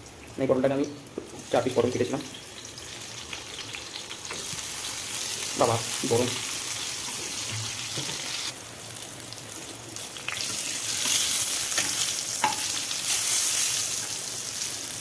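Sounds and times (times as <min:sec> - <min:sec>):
vegetables sizzling in oil: 0:00.0 - 0:15.0.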